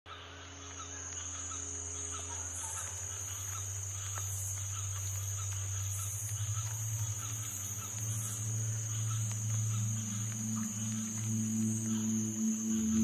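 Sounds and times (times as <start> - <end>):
high-pitched insect chorus: 0.1 - 13.0
low hum: 3.0 - 13.0.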